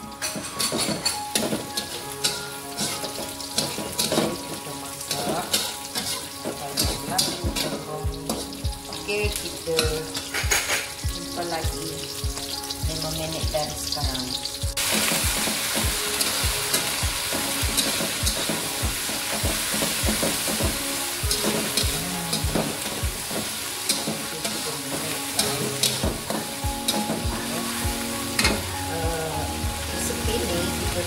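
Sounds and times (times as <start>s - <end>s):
food sizzling in oil: 0.0s - 31.0s
metal spatula scraping wok: 0.2s - 9.2s.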